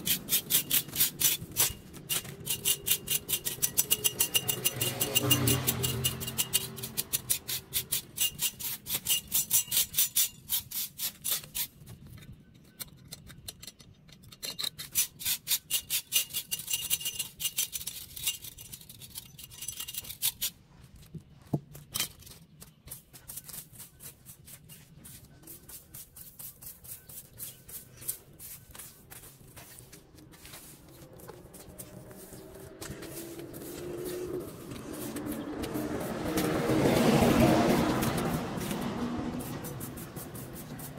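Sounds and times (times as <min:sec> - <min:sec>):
stiff brush sweeping on concrete: 0:00.0 - 0:11.8, 0:22.3 - 0:40.9.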